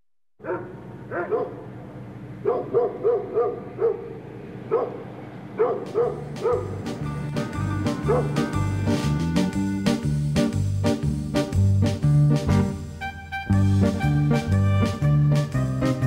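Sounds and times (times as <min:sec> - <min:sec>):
dog barking: 0:00.4 - 0:01.7, 0:02.4 - 0:06.8, 0:07.9 - 0:08.6
music: 0:06.2 - 0:16.0.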